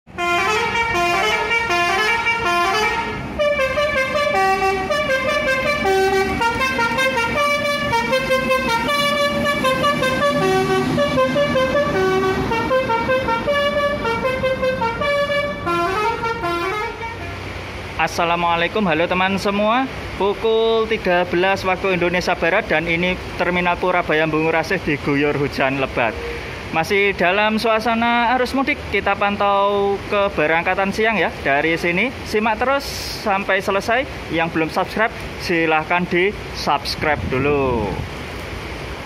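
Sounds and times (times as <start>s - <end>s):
bus musical air horn tune: 0.1s - 17.6s.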